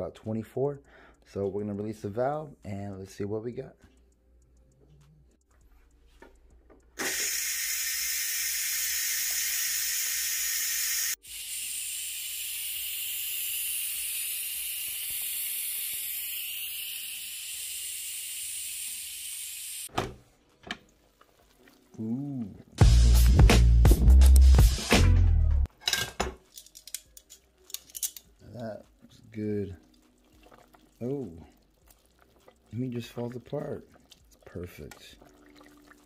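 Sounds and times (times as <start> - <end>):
steam hissing from pressure valve: 7.0 - 19.9.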